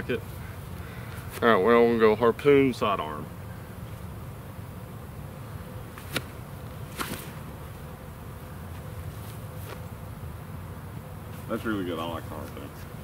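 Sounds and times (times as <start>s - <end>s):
disc throw snap: 5.9s - 7.4s
disc swishing: 5.9s - 7.5s.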